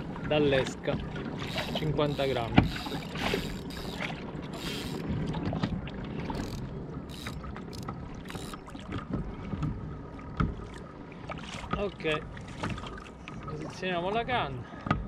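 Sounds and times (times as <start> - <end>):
water lapping against hull: 0.0 - 15.0.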